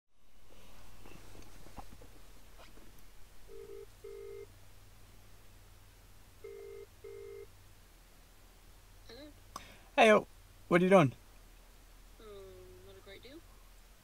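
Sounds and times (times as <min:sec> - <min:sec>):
phone ringback tone: 0:03.5 - 0:04.5, 0:06.4 - 0:07.5.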